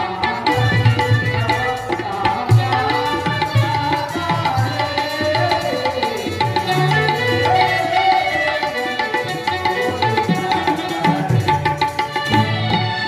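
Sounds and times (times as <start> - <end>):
continuous melody line: 0.0 - 13.0
tabla drumming: 0.0 - 13.0.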